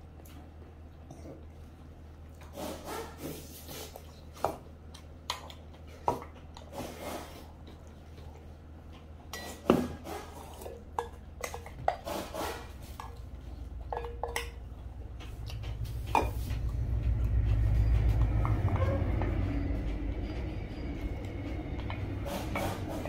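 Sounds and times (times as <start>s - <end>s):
low rumble: 14.6s - 23.0s.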